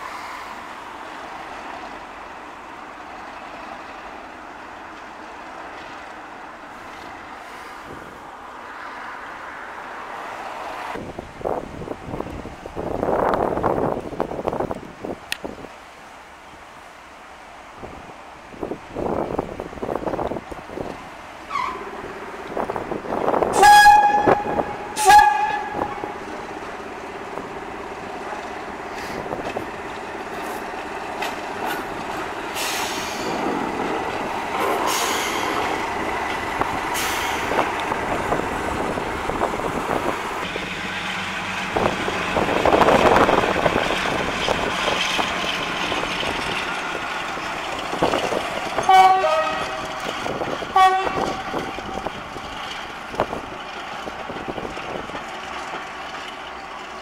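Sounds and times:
diesel locomotive passing: 0.0 - 57.0
locomotive horn: 23.4 - 26.3, 48.8 - 50.1, 50.7 - 52.1.

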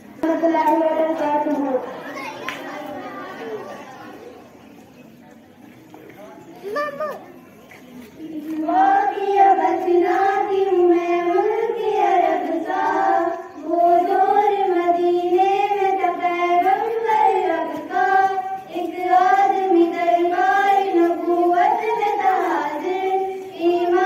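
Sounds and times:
girls singing together: 8.2 - 24.0.

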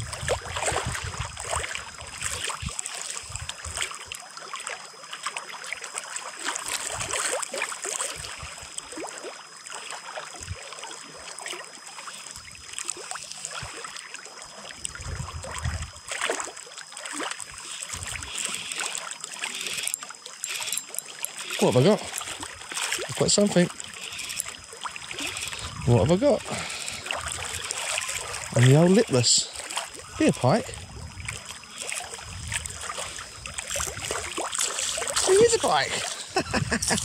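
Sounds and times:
wind buffeting microphone: 0.0 - 1.6, 15.0 - 16.0, 30.1 - 31.5, 32.2 - 34.2, 35.2 - 37.0
waves lapping against stones: 0.0 - 37.0.

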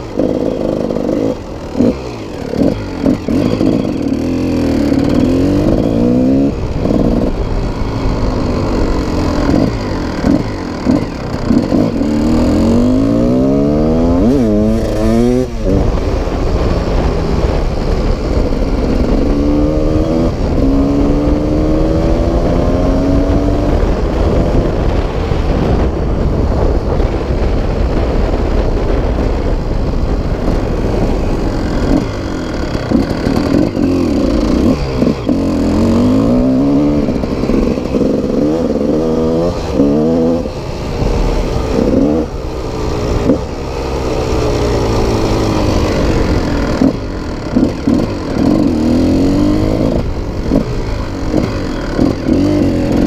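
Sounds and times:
motorcycle engine revving: 0.0 - 53.0
wind rumble on microphone: 0.0 - 53.0.

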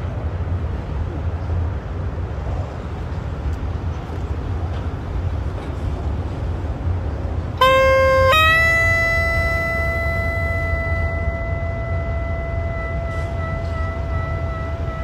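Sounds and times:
steady low rumble: 0.0 - 15.0
low clarinet playing: 7.6 - 15.0.

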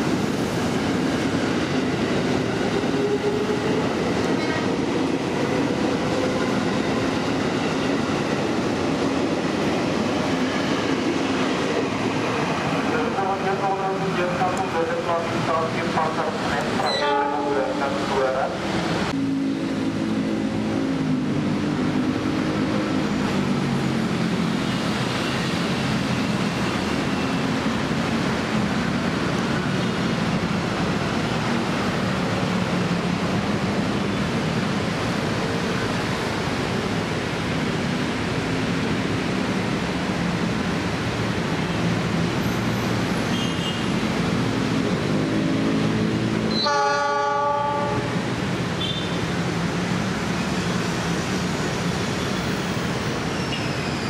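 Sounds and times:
locomotive horn: 16.8 - 17.7, 46.5 - 48.2.

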